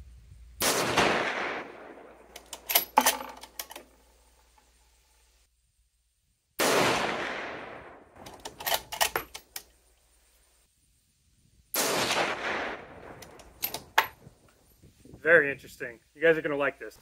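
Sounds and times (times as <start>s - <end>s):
rifle shots with echo: 0.6s - 2.3s, 6.6s - 8.1s, 11.8s - 13.2s
rifle action clicks: 2.3s - 3.9s, 8.2s - 9.7s, 13.2s - 14.2s.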